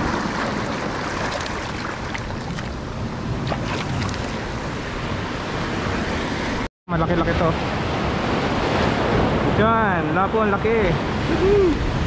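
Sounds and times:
surf washing over rocks: 0.0 - 6.0.

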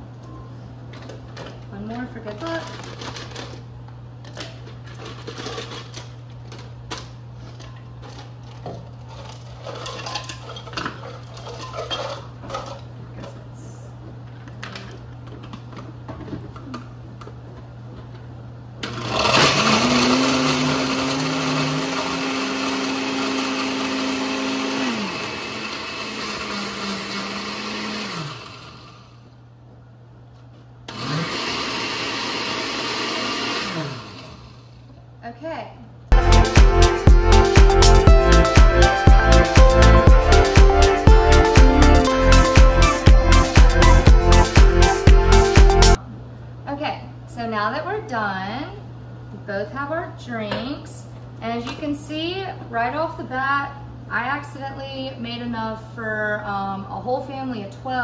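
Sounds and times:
blender motor crushing ice: 18.8 - 29.2, 30.9 - 34.8.

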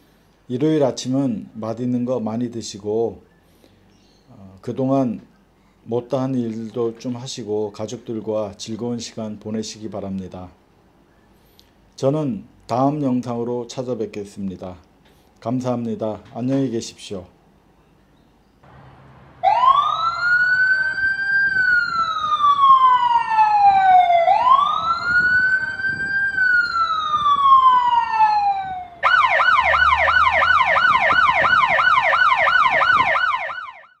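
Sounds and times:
emergency siren wailing: 18.7 - 34.0
siren fast yelp: 19.4 - 34.0.

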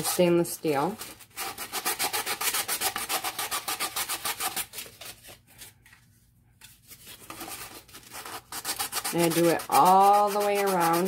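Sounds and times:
sandpaper rubbing on metal: 7.3 - 11.0.

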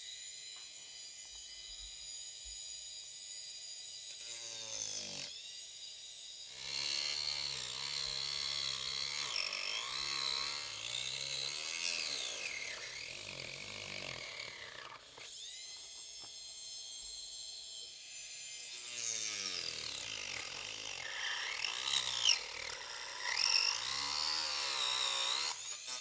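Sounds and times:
mini drill cutting plastic: 0.0 - 26.0.

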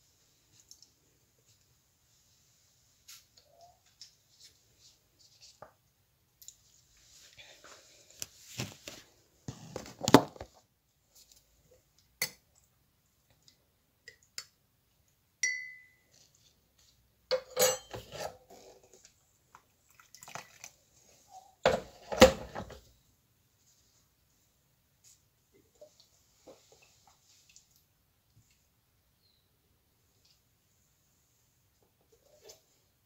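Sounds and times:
ringing clink: 15.4 - 16.0.

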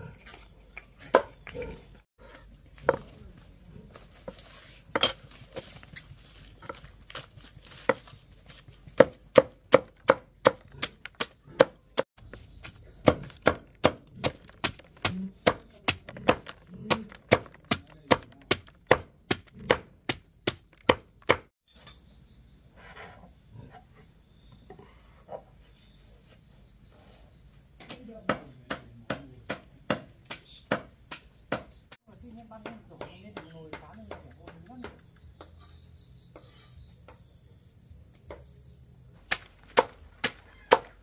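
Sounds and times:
cleaver chopping on wooden block: 1.1 - 1.4, 8.9 - 21.5, 28.3 - 31.8, 39.3 - 41.0.

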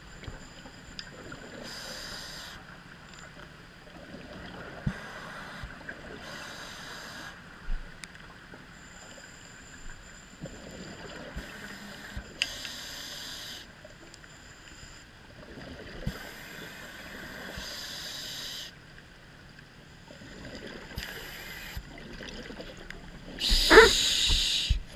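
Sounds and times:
low underwater wash: 0.0 - 24.9
exhaled bubbles hissing underwater: 1.2 - 2.7, 23.3 - 24.9.

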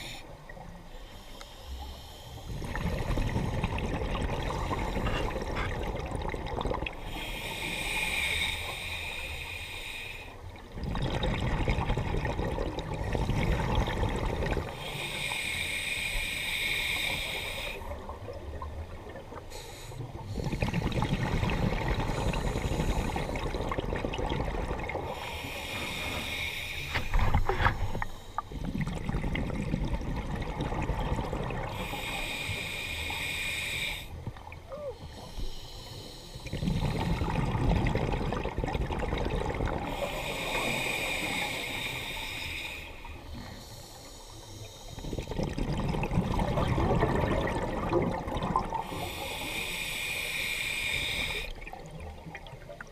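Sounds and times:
hissing regulator inhale: 0.0 - 3.6, 7.0 - 10.4, 14.6 - 18.0, 19.4 - 21.2, 21.9 - 23.6, 25.0 - 28.9, 31.7 - 34.3, 35.0 - 37.3, 39.8 - 45.4, 48.7 - 51.7
gush of exhaust bubbles: 45.1 - 49.2.

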